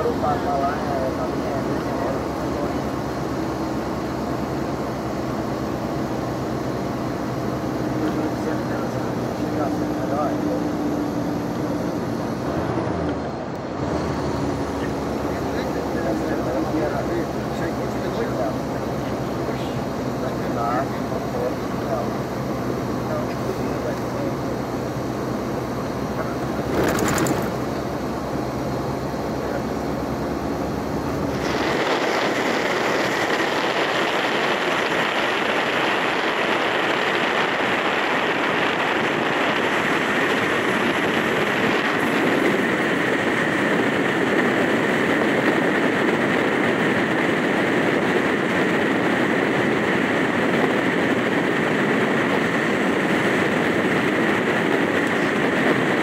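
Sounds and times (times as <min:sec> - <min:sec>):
bus engine hum: 0:00.0 - 0:56.0
faint steady whine: 0:00.0 - 0:56.0
road and wind noise: 0:00.0 - 0:56.0.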